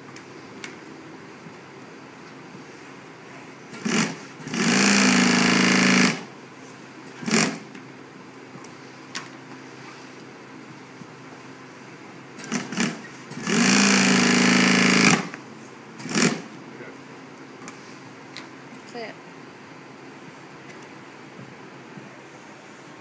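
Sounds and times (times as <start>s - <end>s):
sewing machine stitching: 3.8s - 6.2s, 12.4s - 15.3s.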